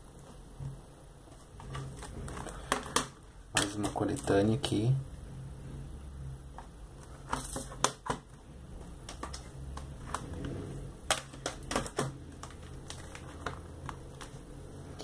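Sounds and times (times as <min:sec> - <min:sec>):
plastic cases clacking on table: 0:01.6 - 0:04.3, 0:06.6 - 0:14.4.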